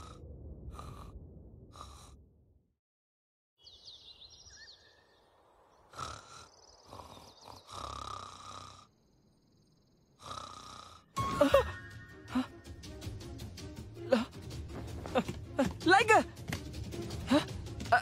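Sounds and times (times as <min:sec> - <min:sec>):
boy snoring: 0:00.0 - 0:02.2, 0:05.9 - 0:09.0, 0:10.2 - 0:11.2.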